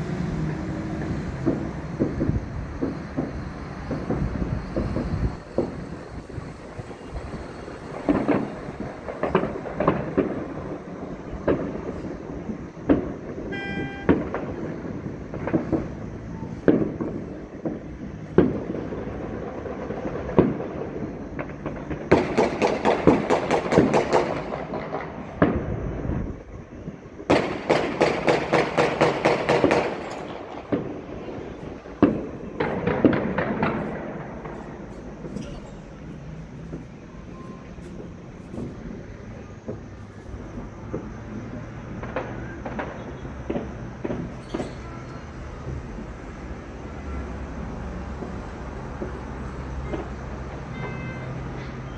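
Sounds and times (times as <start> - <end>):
gunfire and fireworks bangs: 0.5 - 46.2, 48.0 - 51.9
horn toot: 13.5 - 14.3.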